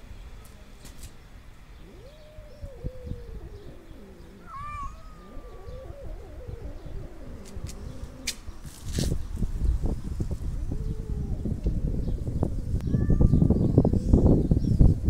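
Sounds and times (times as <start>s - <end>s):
cat yowling: 1.9s - 8.2s, 12.8s - 13.6s.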